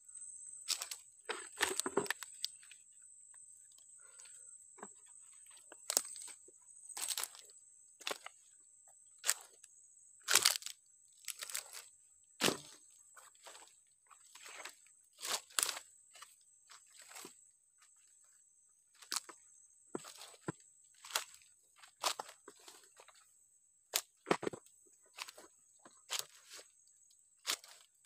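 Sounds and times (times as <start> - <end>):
footsteps crunching on dry leaves: 7.0 - 7.4, 10.3 - 11.8, 13.3 - 15.8, 26.1 - 26.7, 27.5 - 27.9.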